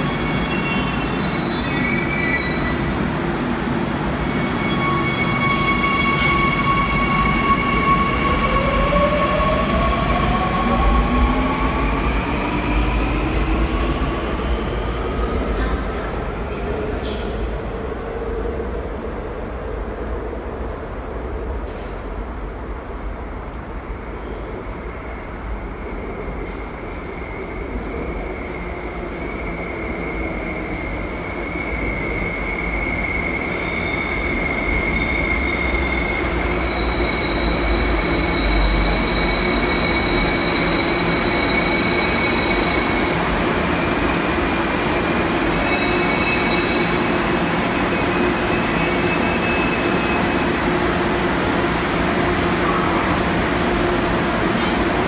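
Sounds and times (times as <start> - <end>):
subway train running noise: 0.0 - 55.0
wheel and brake squeal: 48.8 - 50.2.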